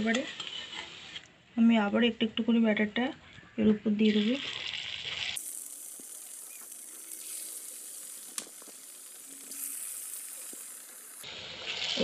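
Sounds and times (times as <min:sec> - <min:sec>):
batter sizzling in hot oil: 0:04.0 - 0:12.0.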